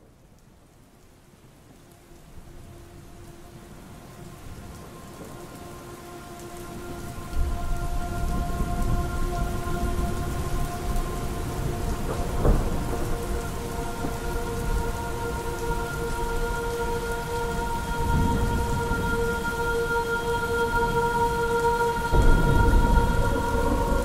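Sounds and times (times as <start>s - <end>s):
rain: 0.0s - 24.0s
sustained chord of held tones: 2.4s - 24.0s
rolling thunder: 6.8s - 16.5s, 17.5s - 19.7s, 21.9s - 24.0s.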